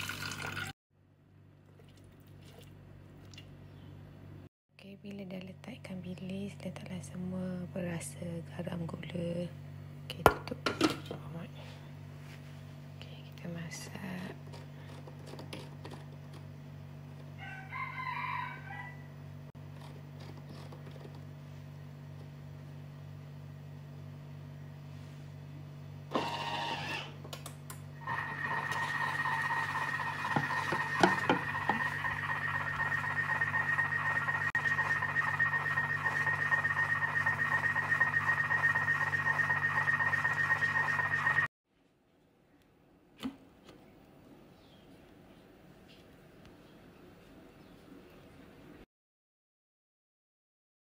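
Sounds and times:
kitchen appliance motor hum: 26.1s - 41.5s
high whine: 28.0s - 41.5s.

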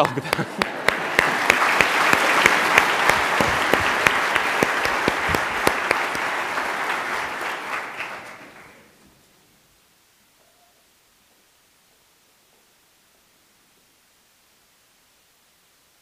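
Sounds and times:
congregation applauding: 0.0s - 9.0s.

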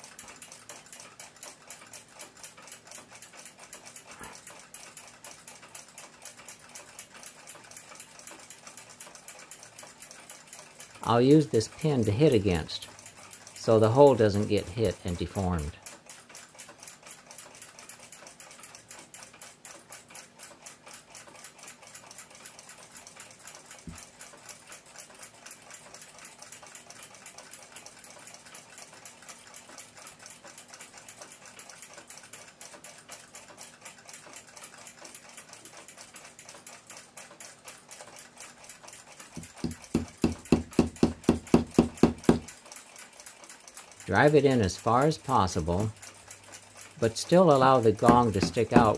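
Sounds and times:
fast even ticking: 39.4s - 42.5s, 45.4s - 48.9s
hammer tapping metal pin: 39.4s - 42.5s, 48.0s - 48.9s.

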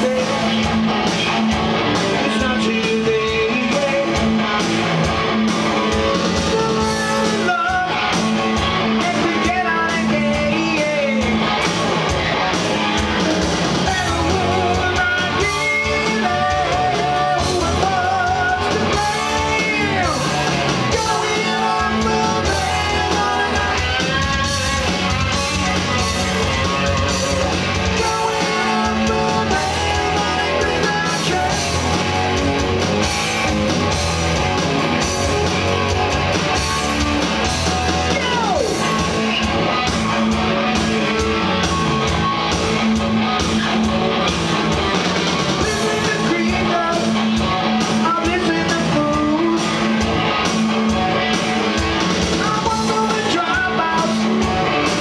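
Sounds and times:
man singing: 0.0s - 0.8s, 2.1s - 4.4s, 6.3s - 8.2s, 8.9s - 11.5s, 13.8s - 24.8s, 26.7s - 32.1s, 45.6s - 50.0s, 52.4s - 55.0s
electric guitar: 0.0s - 55.0s.

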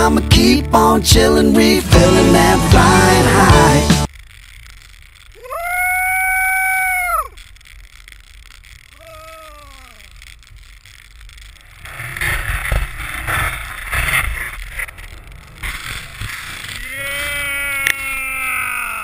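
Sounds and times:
rushing wind and snow: 3.2s - 19.0s
person yelling: 16.8s - 19.0s.

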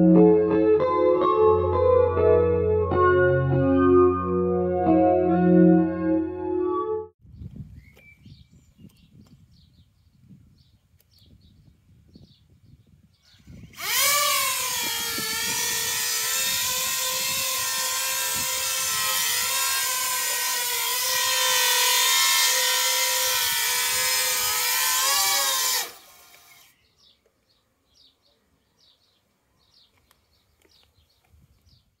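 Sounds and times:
drone motors and propellers whining: 13.6s - 26.7s.

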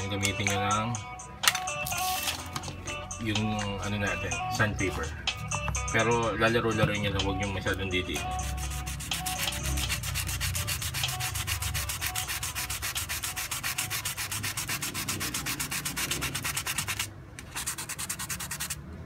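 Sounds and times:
sandpaper rubbing on metal: 8.3s - 18.8s.

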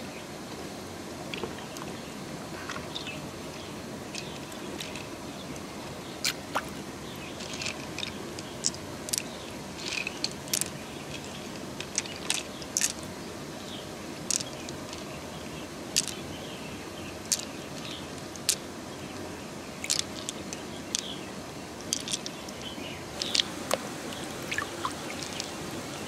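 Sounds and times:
flowing water: 0.0s - 26.0s
pearls clicking together: 7.4s - 13.0s, 14.2s - 15.1s, 16.0s - 16.2s, 17.2s - 18.6s, 19.8s - 21.1s, 21.8s - 22.6s, 23.2s - 23.5s, 24.5s - 25.6s.

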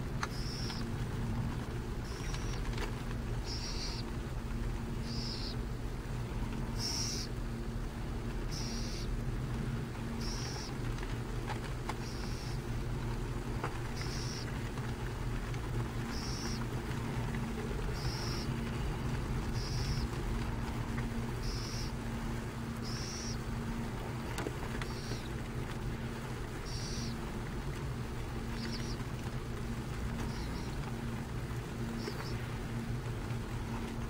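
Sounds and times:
owl chick hissing begging calls: 0.3s - 0.8s, 3.5s - 4.0s, 5.0s - 5.6s, 6.8s - 7.3s, 8.5s - 9.1s, 10.2s - 10.7s, 12.0s - 12.6s, 14.0s - 14.5s, 16.1s - 16.6s, 18.0s - 18.5s, 19.5s - 20.1s, 21.4s - 21.9s, 22.8s - 23.4s, 26.6s - 27.2s, 28.6s - 29.0s, 32.0s - 32.4s.

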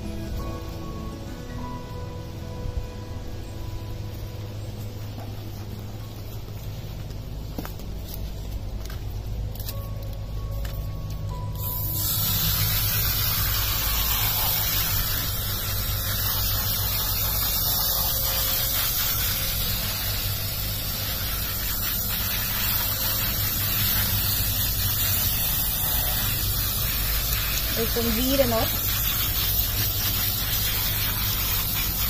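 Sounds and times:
hose nozzle spraying water: 11.6s - 32.0s.

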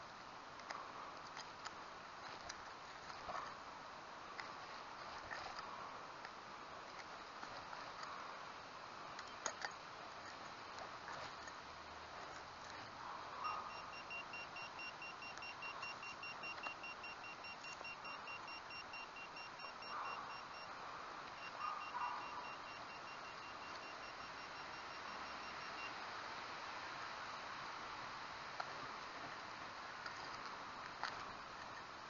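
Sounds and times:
metal detector pulsing beep: 13.4s - 20.7s, 21.3s - 26.0s.

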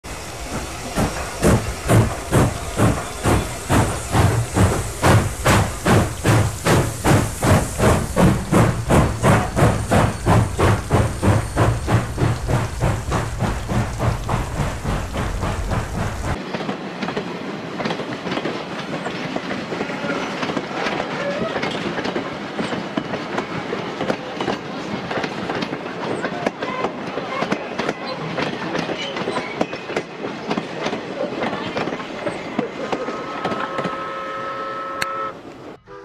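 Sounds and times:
steam locomotive chuffing: 0.1s - 16.4s.

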